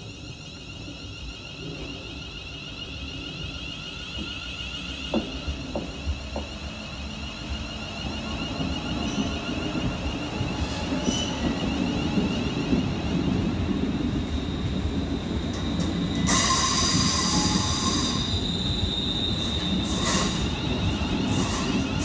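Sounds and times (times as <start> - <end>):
train wheels rumbling on rail: 0.0 - 22.0
high-pitched squeal: 15.8 - 22.0.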